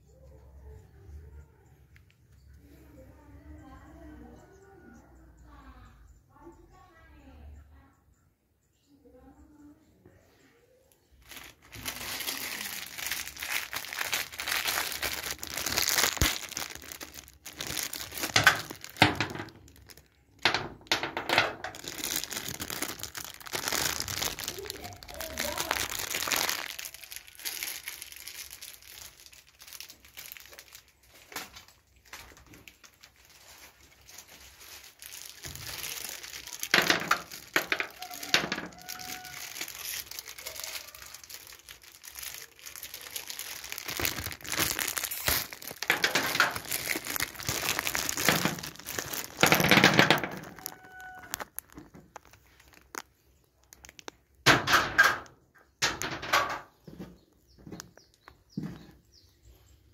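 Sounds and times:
plastic bag crinkling: 11.1 - 55.3.

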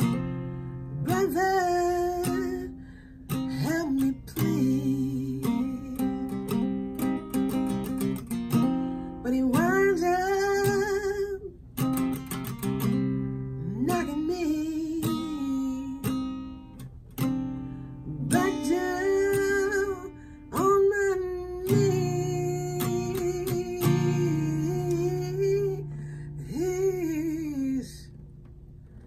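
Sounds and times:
acoustic guitar strummed chords: 0.0 - 27.9
woman singing: 0.9 - 6.6, 9.2 - 11.6, 13.6 - 16.4, 18.0 - 28.1.

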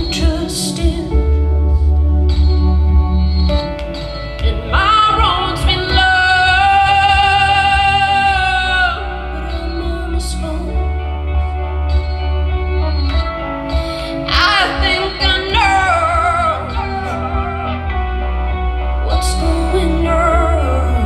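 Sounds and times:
woman singing: 0.0 - 1.9, 4.4 - 11.6, 13.8 - 21.0
instrumental backing music: 0.0 - 21.0.

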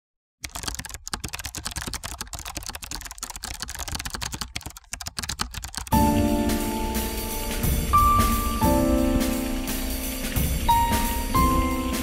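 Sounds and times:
computer keyboard typing: 0.4 - 6.2.

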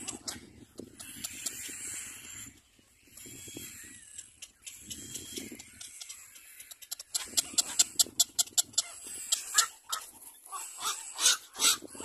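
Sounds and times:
cormorant chicks begging calls: 0.0 - 12.0.

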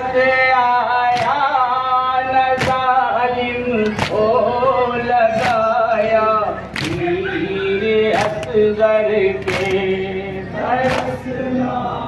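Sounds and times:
men chanting a lament: 0.0 - 12.0.

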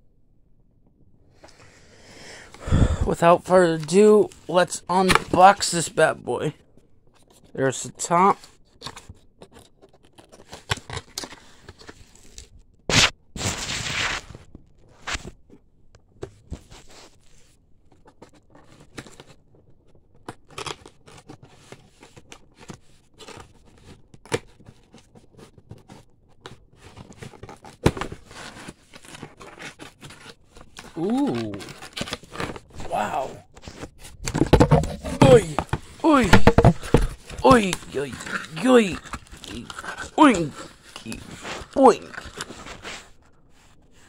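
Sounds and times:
cardboard box rustling and scraping: 33.6 - 43.2.

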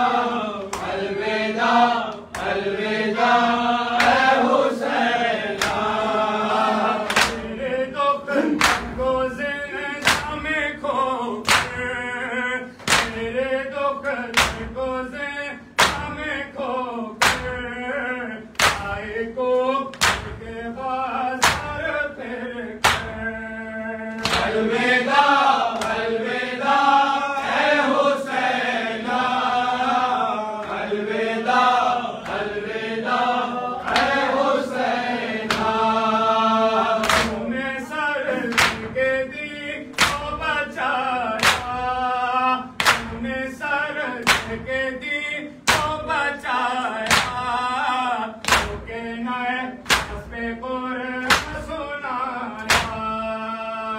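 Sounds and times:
men chanting together: 0.0 - 53.9
chest-beating slaps: 0.6 - 1.0, 5.6 - 6.2, 7.0 - 7.6, 8.3 - 9.2, 10.0 - 10.6, 11.4 - 11.9, 12.8 - 13.3, 14.3 - 14.8, 15.8 - 16.2, 17.2 - 17.6, 18.5 - 19.1, 19.9 - 20.5, 21.4 - 21.9, 22.8 - 23.2, 24.1 - 24.6, 25.7 - 26.0, 33.8 - 34.3, 35.4 - 35.8, 37.0 - 37.6, 38.3 - 39.2, 39.9 - 40.5, 41.4 - 42.0, 42.8 - 43.4, 44.2 - 44.7, 45.6 - 46.2, 47.0 - 47.5, 48.4 - 48.9, 49.8 - 50.4, 51.2 - 51.8, 52.6 - 53.2.

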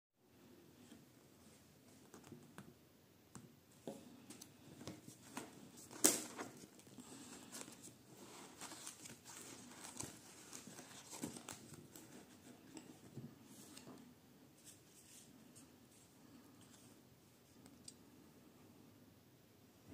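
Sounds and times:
paper rustling: 4.3 - 14.0
plastic film crinkling: 5.2 - 12.4.

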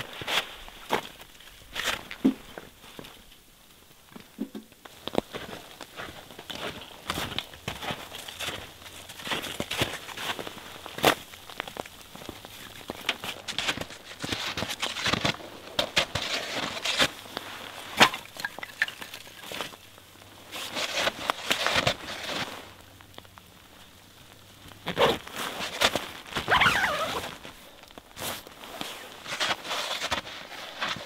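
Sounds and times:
snowshoe footsteps crunching in snow: 0.0 - 3.2, 4.9 - 23.0, 23.6 - 31.0
firewood clattering: 16.8 - 20.0
tent door rustling: 24.8 - 31.0.

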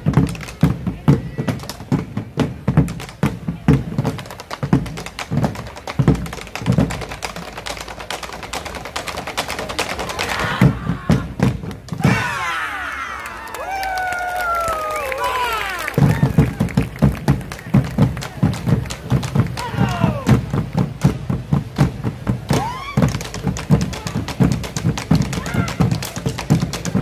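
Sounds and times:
drums beaten with sticks: 0.0 - 12.5, 16.0 - 27.0
crowd whooping: 12.0 - 17.1, 19.6 - 20.4, 22.5 - 23.1.

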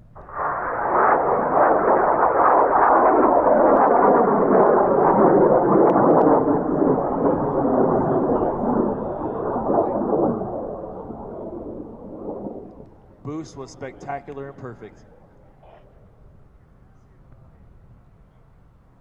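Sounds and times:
distant rocket motor roar: 0.1 - 14.3.

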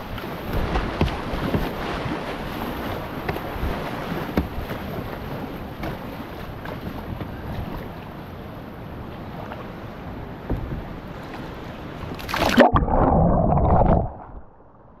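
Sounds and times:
loud water splash: 12.2 - 14.7.

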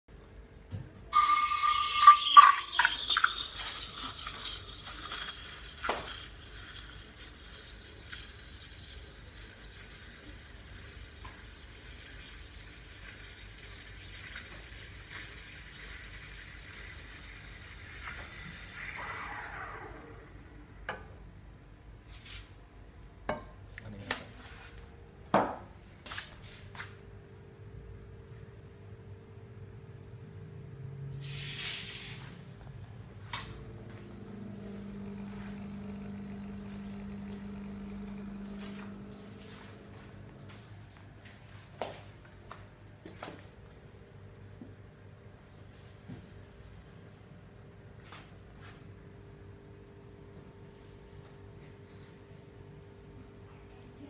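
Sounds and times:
steam wand hissing into milk: 1.2 - 19.6, 31.2 - 32.4, 33.6 - 40.5.

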